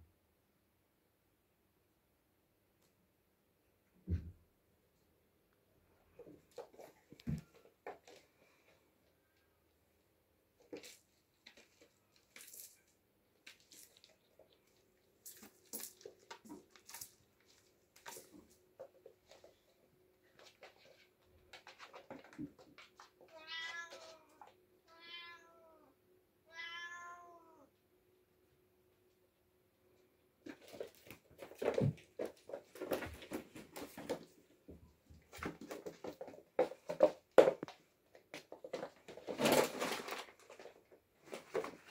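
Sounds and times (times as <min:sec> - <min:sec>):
kittens scampering on wooden floor: 0:06.2 - 0:08.9, 0:10.6 - 0:24.6, 0:30.4 - 0:41.9.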